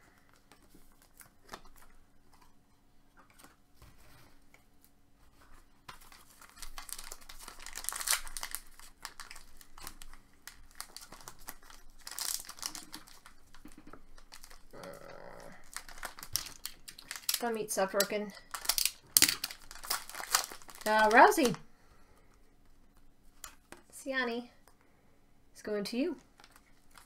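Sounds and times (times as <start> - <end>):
card packaging tearing and crinkling: 5.8 - 21.6, 26.3 - 27.0.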